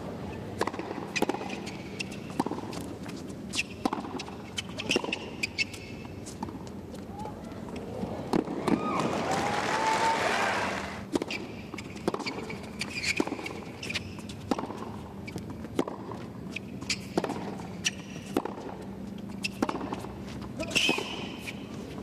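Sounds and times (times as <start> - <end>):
tennis ball bouncing and struck: 0.6 - 2.9, 3.6 - 6.7, 11.1 - 16.3, 16.9 - 20.1, 20.7 - 21.5
applause: 9.1 - 11.0.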